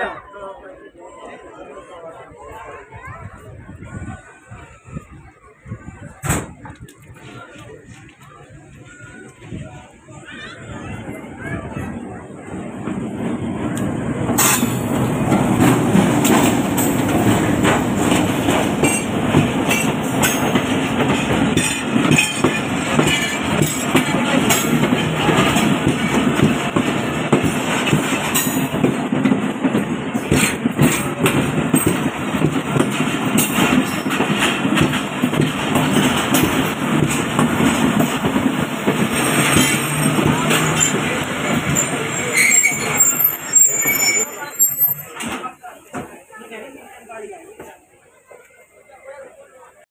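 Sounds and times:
train rumble: 1.4s - 49.8s
diesel locomotive passing: 7.0s - 45.9s
wheels clattering over rail joints: 11.0s - 46.2s.

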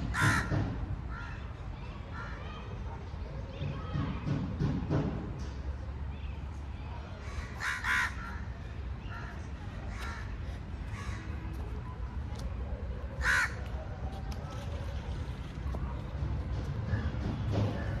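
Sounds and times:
crows cawing: 0.0s - 0.6s, 7.2s - 8.5s, 9.9s - 11.3s, 13.2s - 13.6s.

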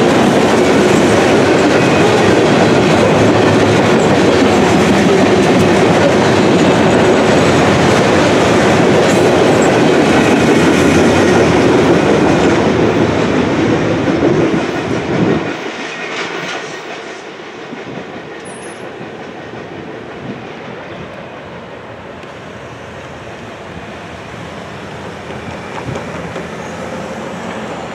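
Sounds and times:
freight train clattering over rails: 0.0s - 27.9s
road traffic passing: 20.9s - 27.9s.

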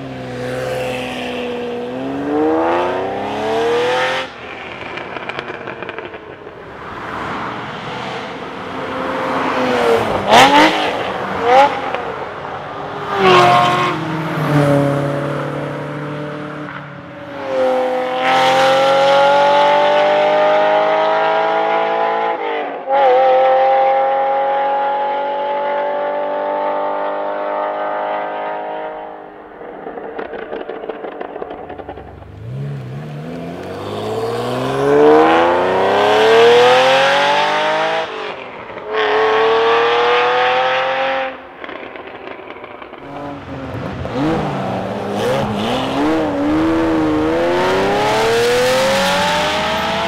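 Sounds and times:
exhaust crackling and popping: 4.3s - 6.8s, 29.6s - 34.1s, 41.6s - 45.1s
sports car engine accelerating: 29.9s - 50.0s.

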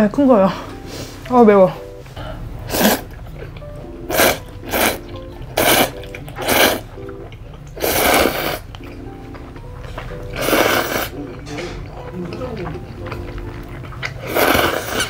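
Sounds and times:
background music: 0.0s - 15.0s
noodles being slurped: 2.6s - 9.0s, 10.3s - 15.0s.

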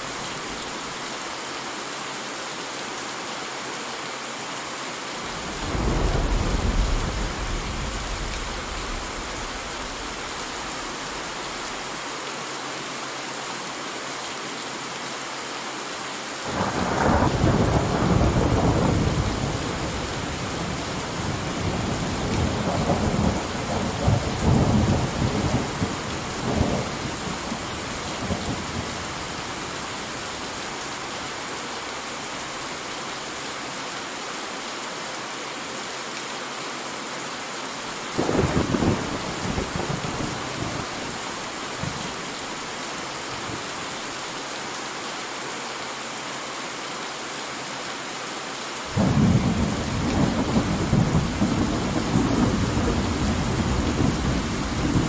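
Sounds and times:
steady rain hissing: 0.0s - 55.0s
thunder rolling and rumbling: 5.3s - 11.3s, 16.5s - 29.6s, 38.2s - 41.2s, 49.0s - 55.0s.

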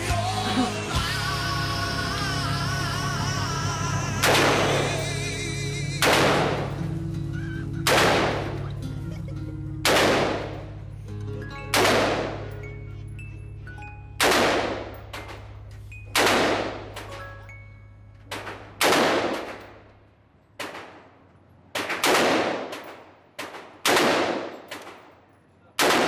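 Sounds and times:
rifle shots echoing: 4.2s - 5.1s, 6.0s - 7.0s, 7.8s - 8.8s, 9.8s - 10.8s, 11.7s - 12.6s, 14.2s - 17.2s, 18.3s - 20.0s, 20.6s - 25.2s, 25.8s - 26.0s.

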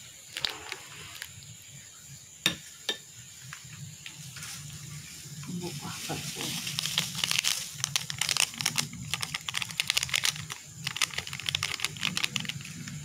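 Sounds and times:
plastic sachet crinkling: 5.8s - 12.8s.

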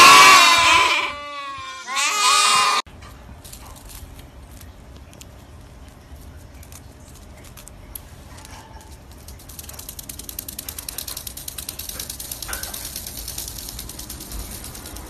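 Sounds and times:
parrot fast ratchet-like clicks: 9.0s - 15.0s.

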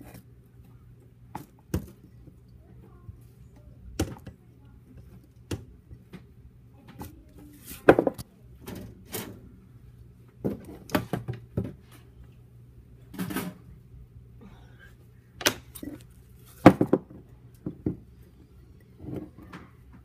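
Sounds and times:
low steady hum: 0.0s - 20.0s.

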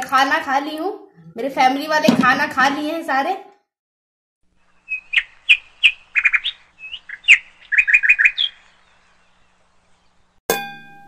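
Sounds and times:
bird-like chirps: 4.6s - 10.4s
bell ding: 10.5s - 11.0s.

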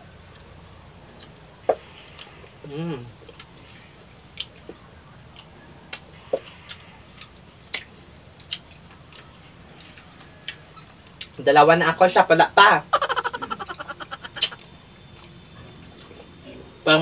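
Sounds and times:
wet chewing of fruit pulp: 1.2s - 11.4s.

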